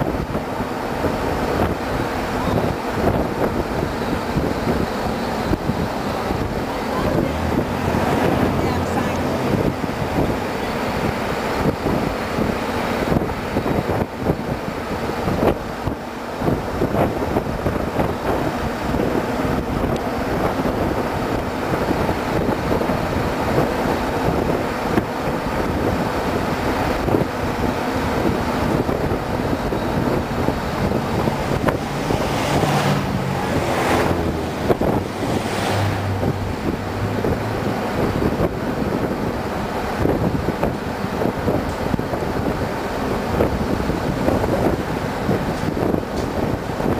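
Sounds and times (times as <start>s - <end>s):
car engine and road noise: 0.0s - 46.9s
loud rushing: 0.0s - 46.9s
wind buffeting microphone: 0.0s - 46.9s.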